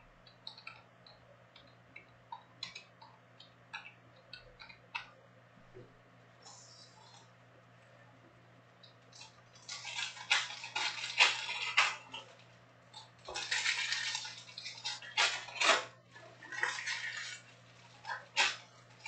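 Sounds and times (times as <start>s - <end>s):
foil wrappers crinkling: 9.1s - 19.0s.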